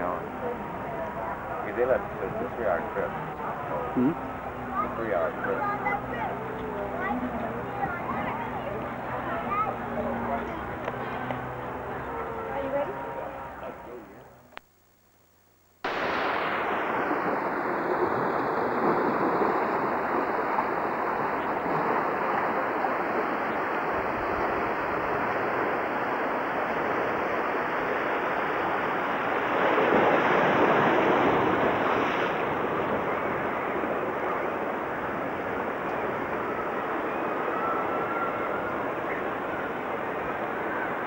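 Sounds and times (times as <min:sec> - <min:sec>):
wind: 0:00.0 - 0:41.0
surf washing against rocks: 0:15.9 - 0:41.0.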